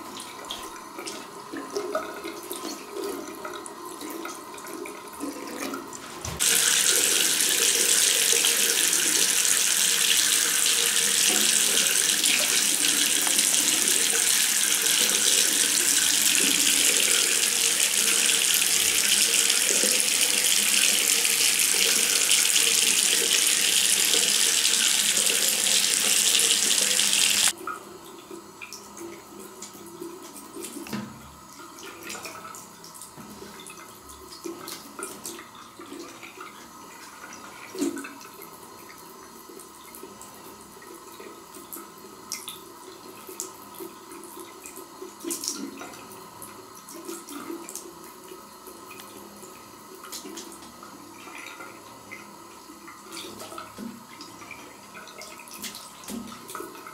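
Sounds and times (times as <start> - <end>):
tap water pouring into bowl: 1.6 - 27.8.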